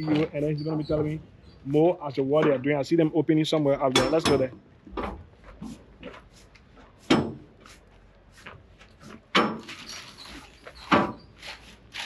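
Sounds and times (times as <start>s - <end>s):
metal container doors clanking: 3.8s - 5.2s.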